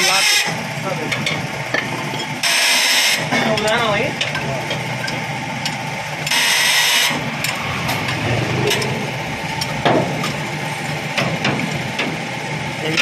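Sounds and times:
engine running: 0:04.5 - 0:13.0.

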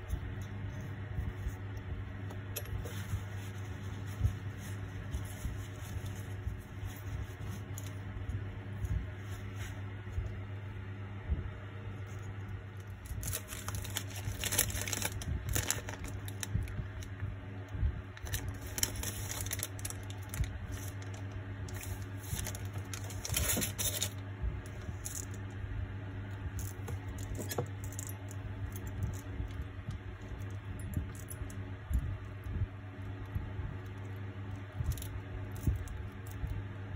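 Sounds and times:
steady low hum: 0:00.0 - 0:36.9
tissue paper rustling: 0:02.6 - 0:10.4, 0:13.0 - 0:16.8, 0:18.2 - 0:24.2.

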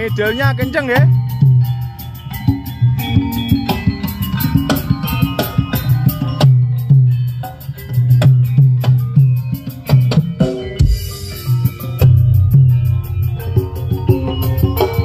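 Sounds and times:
loud music through pa speakers: 0:00.0 - 0:15.0.

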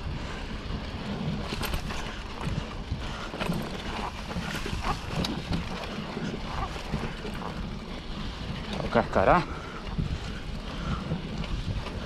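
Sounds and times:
wind rumbling on microphone: 0:00.0 - 0:12.0.

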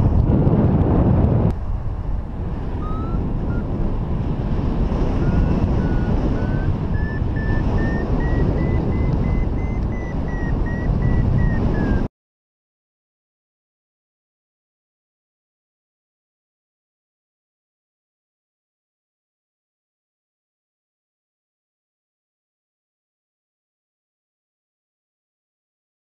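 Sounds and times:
wind buffeting microphone: 0:00.0 - 0:12.1
variometer beeping: 0:02.8 - 0:03.7, 0:05.2 - 0:12.1.

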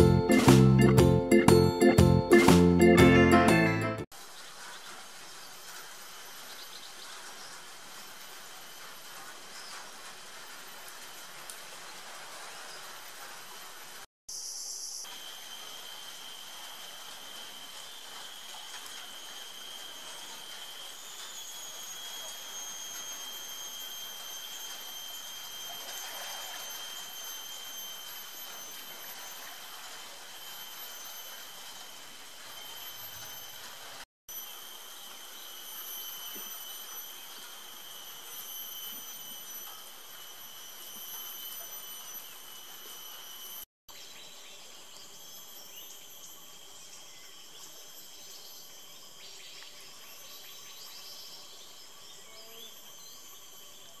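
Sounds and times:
steady high-pitched tones: 0:00.0 - 0:03.8, 0:15.0 - 0:54.0
insects droning: 0:06.1 - 0:54.0.

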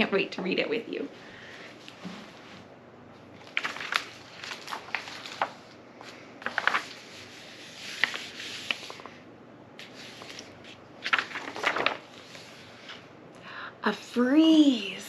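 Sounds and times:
book pages turning: 0:03.4 - 0:09.2, 0:09.8 - 0:13.0.

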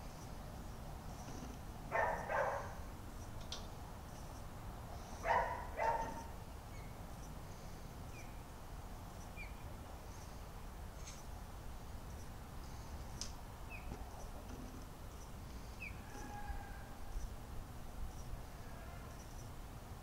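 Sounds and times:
dog barking: 0:01.9 - 0:02.8, 0:05.2 - 0:06.3.

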